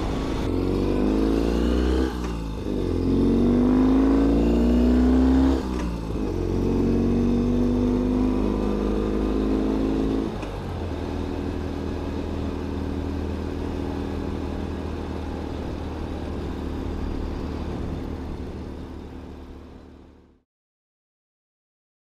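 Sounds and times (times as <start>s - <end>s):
motorcycle engine running: 0.0s - 20.4s.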